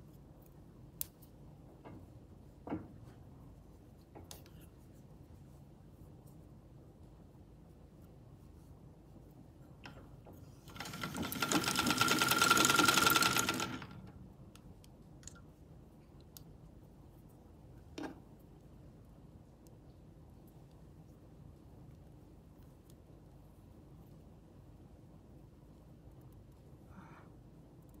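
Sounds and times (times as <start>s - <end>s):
sewing machine whirring: 10.6s - 14.2s.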